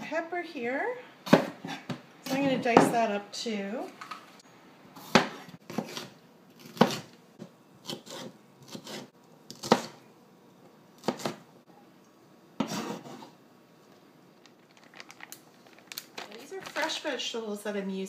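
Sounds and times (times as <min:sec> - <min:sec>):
knife chopping on plastic board: 0:05.0 - 0:10.0, 0:11.0 - 0:11.4.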